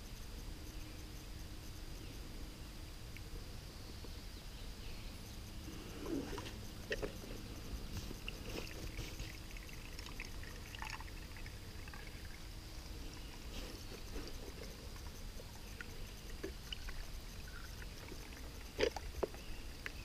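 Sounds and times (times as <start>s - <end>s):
small ticks: 5.4s - 20.0s
water trickling into a cup: 8.2s - 19.1s.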